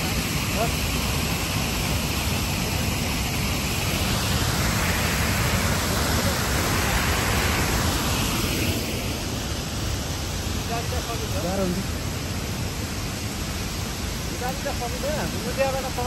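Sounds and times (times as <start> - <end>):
waterfall roaring: 0.0 - 16.0.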